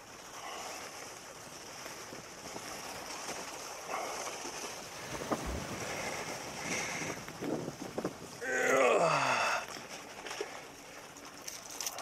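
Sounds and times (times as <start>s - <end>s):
waves washing against concrete: 0.0s - 8.4s
wind buffeting microphone: 4.7s - 8.6s.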